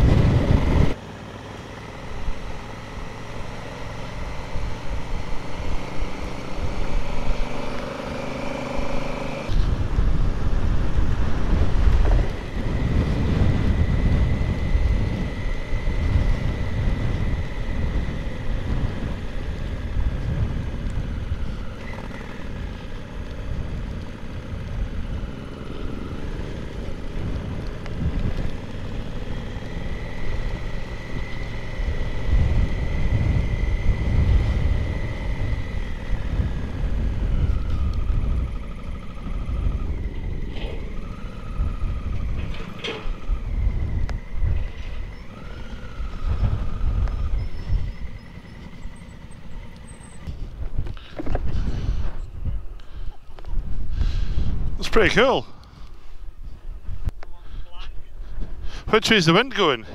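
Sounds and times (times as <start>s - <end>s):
strong wind buffeting microphone: 0.0s - 1.0s, 9.5s - 29.9s, 30.6s - 59.0s
faint high whine: 12.3s - 20.2s.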